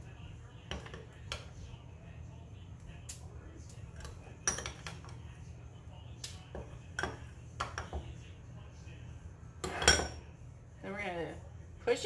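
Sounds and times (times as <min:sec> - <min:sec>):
metal spoon clinking glass bowl: 0:04.0 - 0:05.1, 0:09.6 - 0:10.3.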